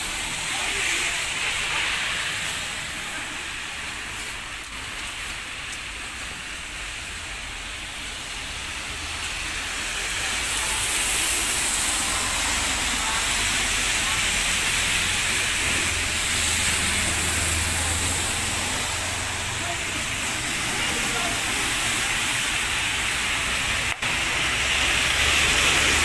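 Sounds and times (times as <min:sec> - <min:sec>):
steady rain: 0:00.0 - 0:26.0.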